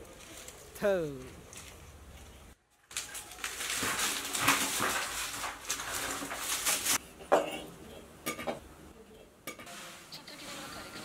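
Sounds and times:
broom scraping straw on floor: 0:03.5 - 0:07.0, 0:09.7 - 0:10.8.

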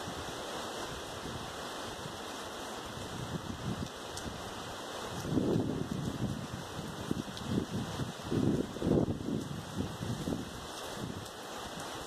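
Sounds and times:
strong wind rustling tree leaves: 0:00.0 - 0:12.0
wind buffeting microphone: 0:02.8 - 0:12.0.

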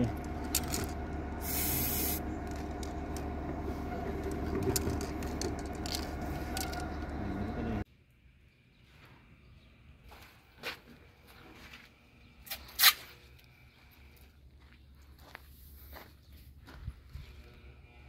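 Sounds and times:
low machine hum: 0:00.0 - 0:07.8
spray-paint can hissing: 0:01.4 - 0:02.2.

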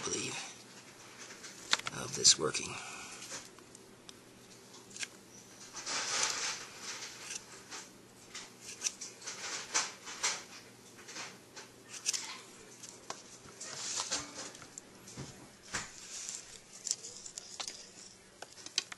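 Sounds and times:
knife scraping wood: 0:06.2 - 0:07.5.

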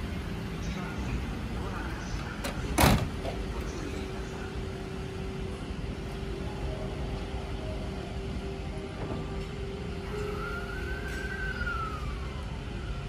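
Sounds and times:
stopped electric train humming: 0:00.0 - 0:13.0.

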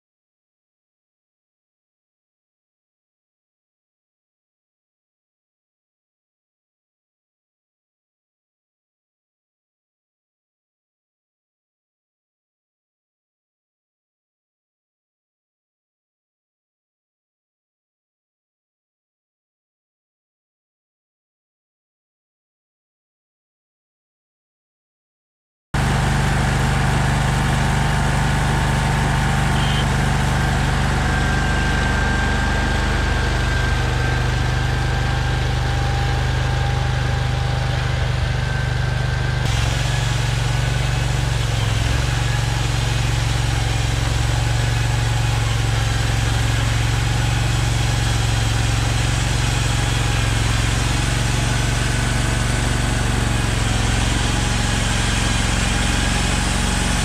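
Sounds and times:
small gasoline engine running: 0:25.8 - 0:57.0.

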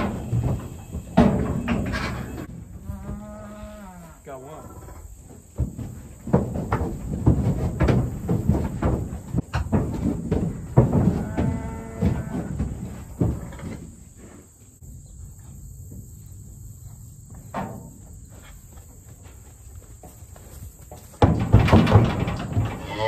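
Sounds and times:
hooves clattering: 0:00.0 - 0:23.0
high insect buzz: 0:01.9 - 0:05.2.

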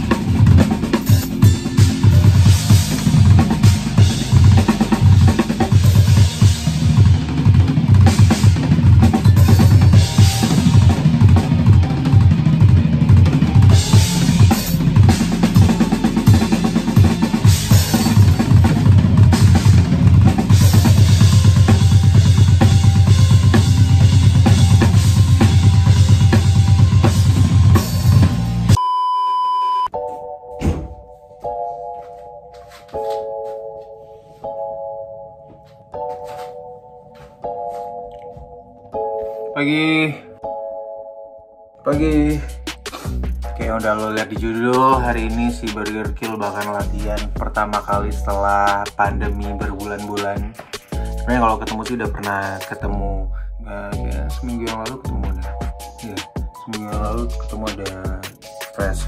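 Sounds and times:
bass drum: 0:00.0 - 0:28.8, 0:42.0 - 0:52.4, 0:54.0 - 0:59.0.

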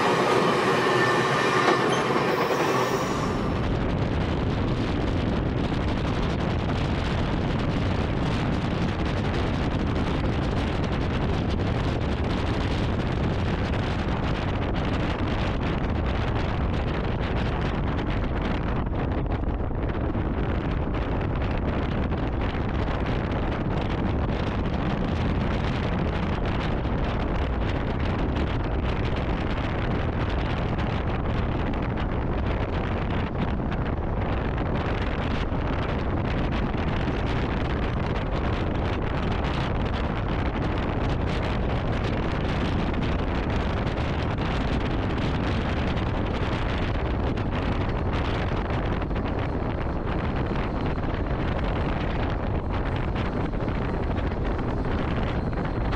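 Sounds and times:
train wheels rumbling on rails: 0:00.0 - 0:55.9
wind noise on microphone: 0:00.0 - 0:55.9.

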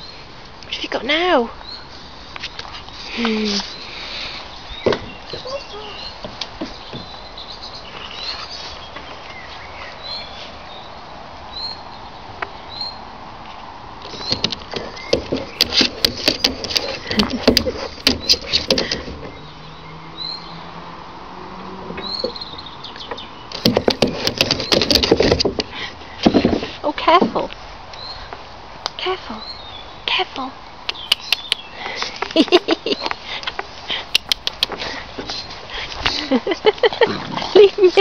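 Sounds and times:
bird chirps: 0:03.7 - 0:13.1, 0:19.2 - 0:20.7, 0:22.0 - 0:25.0, 0:28.0 - 0:28.3, 0:30.8 - 0:31.9
dog claws scrabbling on plastic: 0:14.1 - 0:19.2, 0:23.5 - 0:25.6.

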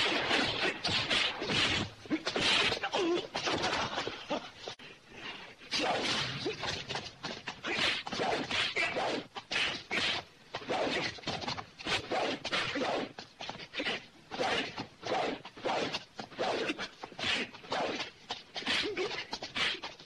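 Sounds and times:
punch and kick impacts: 0:00.0 - 0:03.9.

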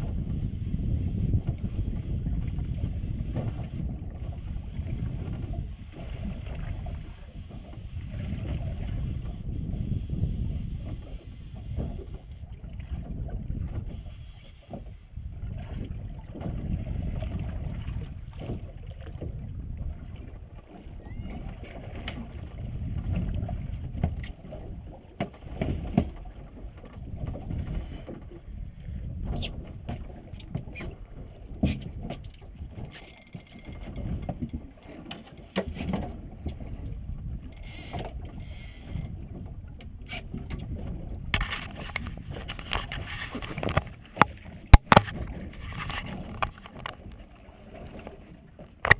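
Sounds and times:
water sloshing against hull: 0:00.0 - 0:48.9
wind on microphone: 0:00.0 - 0:48.9
knocks and clicks of gear: 0:41.4 - 0:47.1.

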